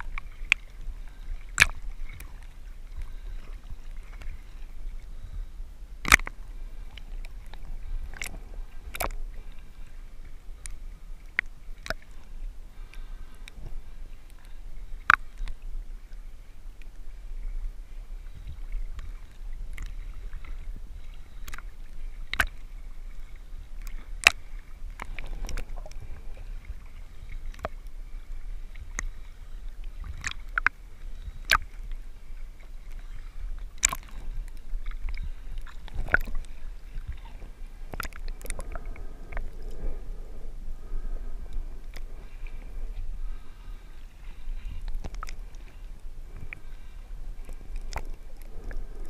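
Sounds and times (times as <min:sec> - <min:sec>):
muffled water sloshing: 0:00.0 - 0:49.0.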